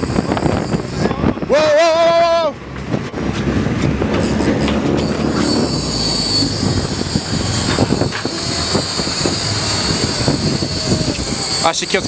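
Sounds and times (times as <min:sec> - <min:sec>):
boat rumble: 0:00.0 - 0:12.0
fishing reel drag whining: 0:05.0 - 0:12.0.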